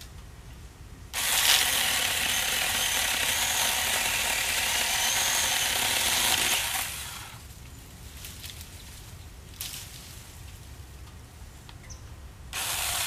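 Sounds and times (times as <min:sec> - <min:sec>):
mini chainsaw high whine: 0:01.2 - 0:07.4, 0:12.6 - 0:13.0.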